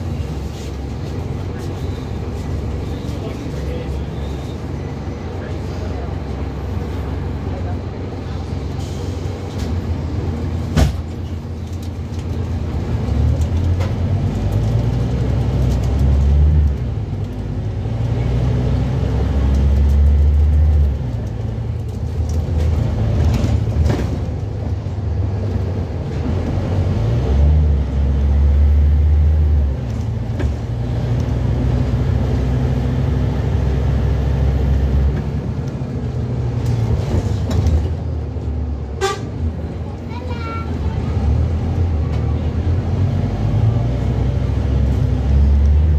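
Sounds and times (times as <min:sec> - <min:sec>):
bus diesel engine pulling: 0:00.0 - 0:45.9.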